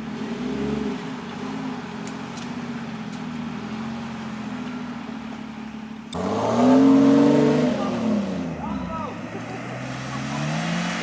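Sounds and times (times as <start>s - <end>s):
off-road vehicle engine running: 0.0s - 11.0s.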